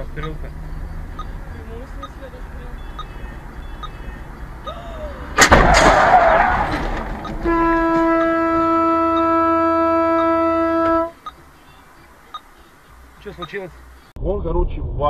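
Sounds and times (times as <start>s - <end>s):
loud crash: 5.4s - 7.4s
car horn steady note: 7.2s - 13.6s.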